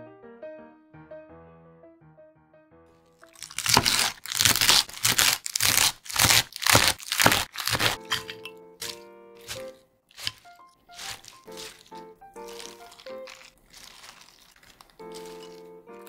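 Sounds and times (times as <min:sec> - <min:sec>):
soft piano music: 0:00.0 - 0:03.4, 0:08.0 - 0:14.2, 0:14.9 - 0:16.0
knife chopping on wooden board: 0:03.6 - 0:12.8.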